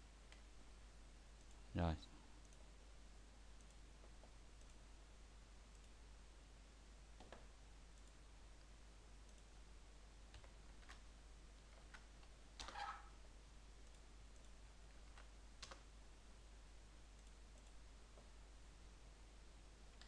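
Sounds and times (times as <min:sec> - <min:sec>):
keyboard and mouse clicks: 0:07.2 - 0:08.2, 0:10.3 - 0:11.0, 0:11.7 - 0:13.0, 0:13.8 - 0:15.9, 0:17.2 - 0:18.3.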